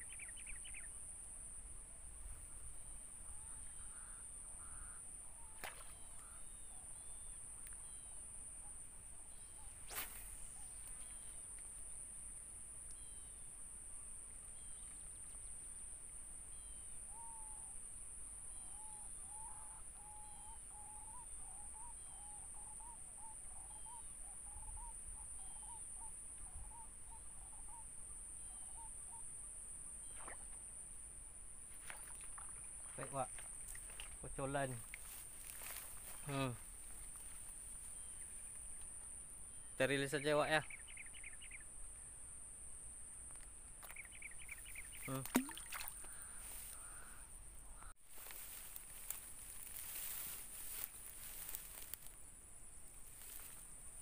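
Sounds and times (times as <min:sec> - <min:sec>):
short bird chirps: 0:00.0 - 0:00.9, 0:40.5 - 0:41.6, 0:43.8 - 0:47.2.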